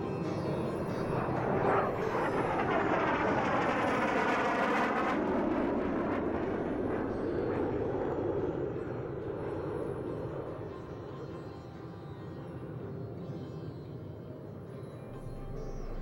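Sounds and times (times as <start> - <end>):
aircraft passing overhead: 0.0 - 11.4.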